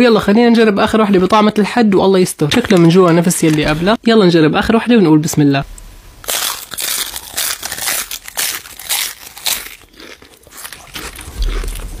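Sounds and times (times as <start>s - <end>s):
crunchy snack chewing: 6.2s - 12.0s.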